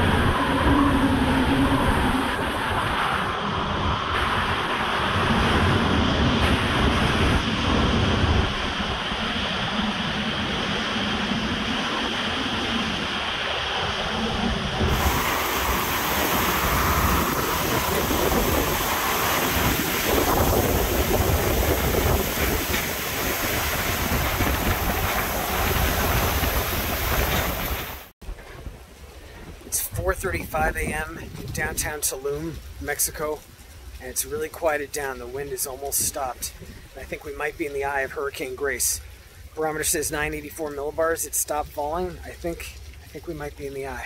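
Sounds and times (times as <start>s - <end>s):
wind buffeting microphone: 0.0s - 38.3s
hurricane wind roaring: 0.0s - 44.0s.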